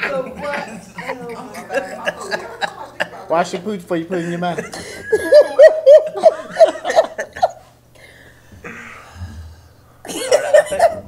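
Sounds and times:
voices: 0.0s - 7.0s
people laughing: 0.0s - 7.6s, 10.2s - 11.0s.

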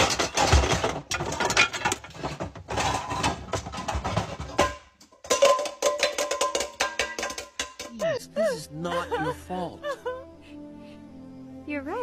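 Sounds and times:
pots and pans clattering: 0.0s - 8.0s.

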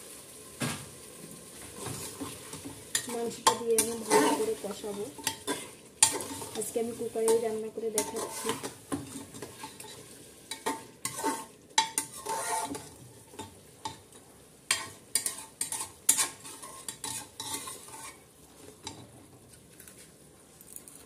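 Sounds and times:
meat sizzling: 0.0s - 19.0s
spatula scraping a pot: 1.8s - 14.0s, 14.7s - 19.0s.

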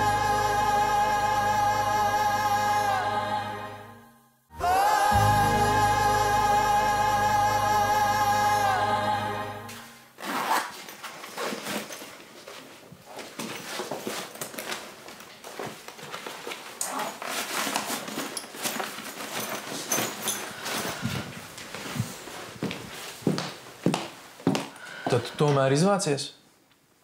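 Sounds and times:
theme music: 0.0s - 10.2s
rustling of things rummaged: 10.2s - 23.9s.

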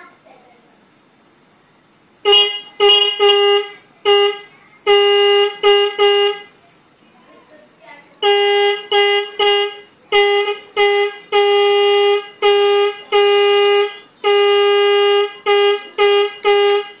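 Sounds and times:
electric horn honking: 2.2s - 6.5s, 8.2s - 17.0s.

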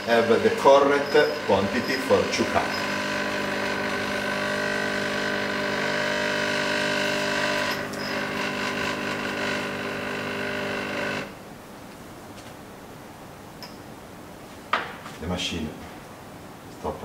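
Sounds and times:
espresso machine pump humming: 0.0s - 11.3s.

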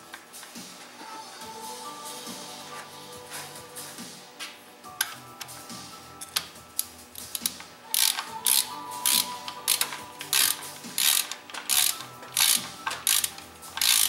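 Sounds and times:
ratchet wrench clicking: 6.2s - 14.0s.

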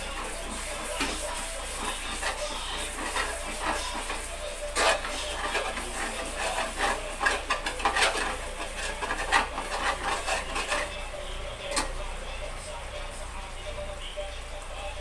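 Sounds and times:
metal spatula scraping a wok: 0.0s - 12.0s.

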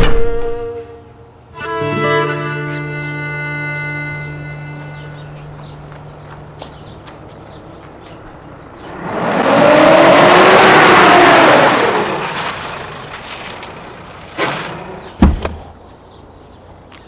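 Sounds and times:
pickup truck driving by: 8.5s - 15.2s
thuds: 14.4s - 15.8s.

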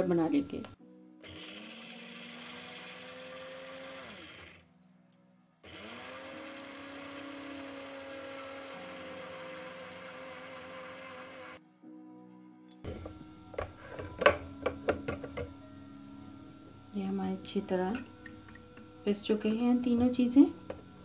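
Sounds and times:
mixer grinder motor whining: 1.2s - 4.7s, 5.6s - 11.6s.

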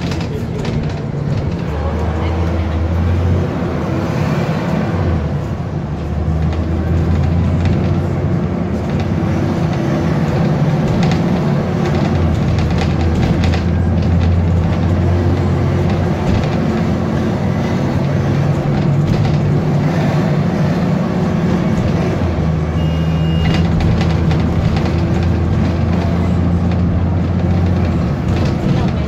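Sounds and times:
bus diesel engine drone: 0.0s - 29.0s
faint high beep: 22.8s - 23.6s.

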